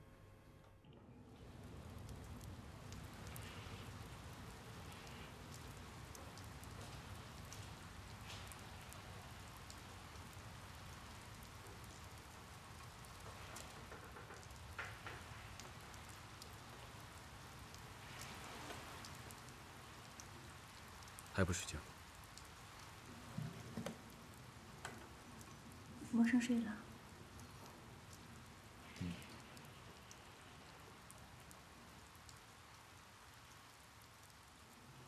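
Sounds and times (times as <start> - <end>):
rain on window glass: 1.1 - 35.0.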